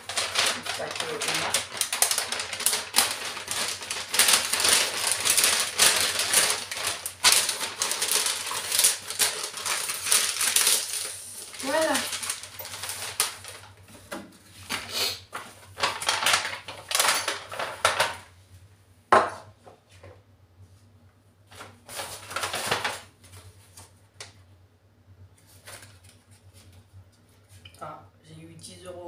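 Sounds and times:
paper bag rustling: 0:00.0 - 0:18.3, 0:21.5 - 0:23.9, 0:25.4 - 0:26.8.

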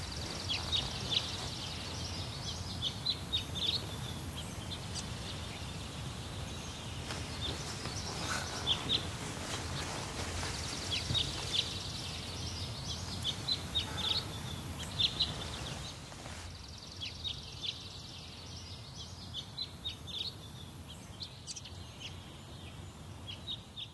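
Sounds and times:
low background noise: 0:00.0 - 0:23.9
small birds chirping: 0:00.0 - 0:23.9.

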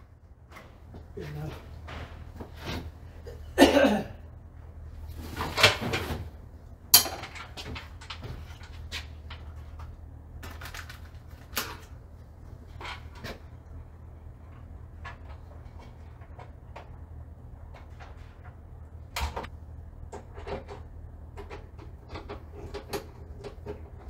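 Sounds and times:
steady low hum: 0:00.0 - 0:24.0
plastic parts clunking and clicking: 0:17.6 - 0:24.0.

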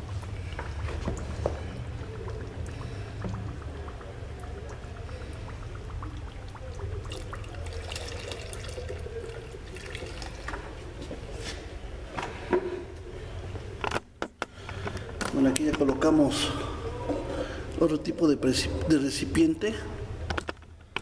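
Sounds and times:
water gurgling and splashing: 0:00.0 - 0:10.8
steady low hum: 0:00.0 - 0:13.8.

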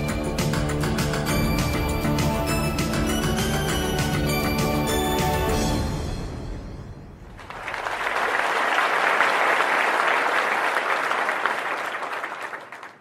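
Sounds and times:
credits music: 0:00.0 - 0:08.3
crowd applause: 0:07.4 - 0:13.0.

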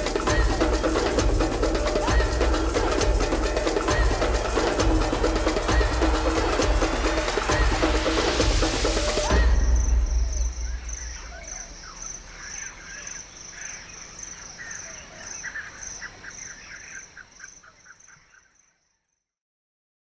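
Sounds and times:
insect pulsing high trill: 0:00.0 - 0:16.0
birds chirping: 0:00.0 - 0:19.1.

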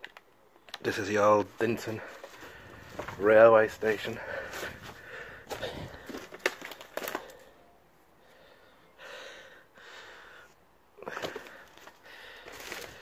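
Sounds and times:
twigs crackling: 0:00.0 - 0:07.5, 0:11.1 - 0:13.0
footsteps crunching on dry leaves: 0:01.6 - 0:07.2
person breathing: 0:02.0 - 0:03.2, 0:04.1 - 0:06.4, 0:07.0 - 0:13.0.

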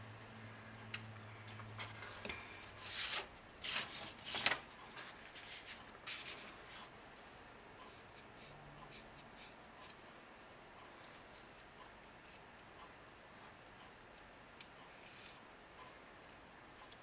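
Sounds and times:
paper rustling and sliding: 0:01.8 - 0:06.9.

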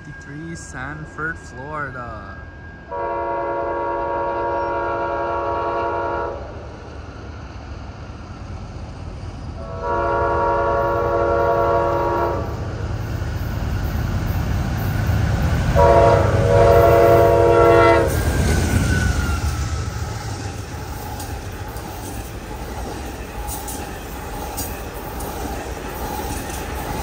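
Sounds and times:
low rumble of train: 0:00.0 - 0:27.0
locomotive air horn blasts: 0:02.9 - 0:06.4, 0:09.6 - 0:12.5, 0:15.8 - 0:18.2.

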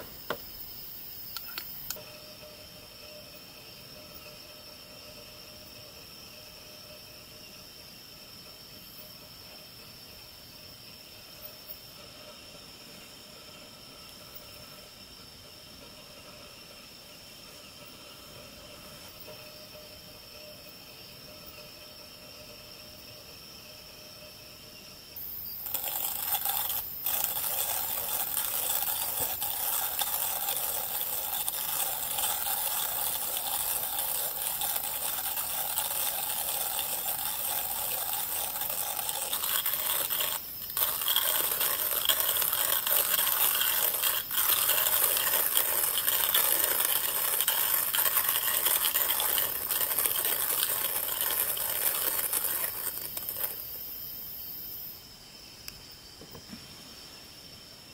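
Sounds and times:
hand coffee grinder crunching beans: 0:25.2 - 0:53.8.

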